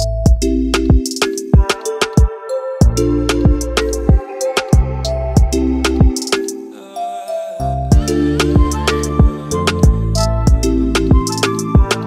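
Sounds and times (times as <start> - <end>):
bass line: 0.0 - 0.9, 4.8 - 6.2, 7.6 - 11.9
hi-hat ticks: 0.0 - 6.6
held synth notes: 1.9 - 12.0
deep kick drums: 2.8 - 3.6, 7.9 - 11.9.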